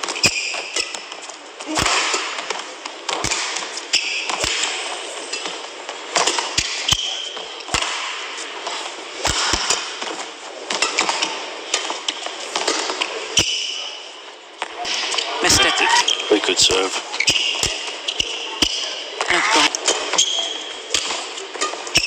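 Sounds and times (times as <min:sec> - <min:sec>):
crowd hum: 0:15.3 - 0:17.2, 0:19.2 - 0:20.0.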